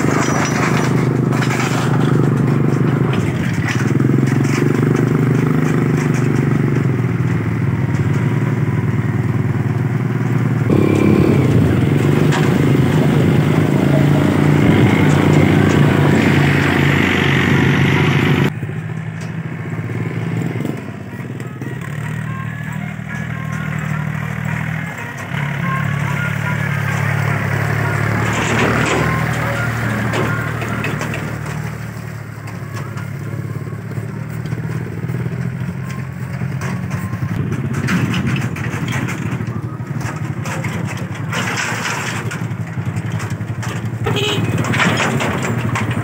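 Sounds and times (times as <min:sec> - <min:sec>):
tractor diesel engine droning: 0:00.0 - 0:46.0.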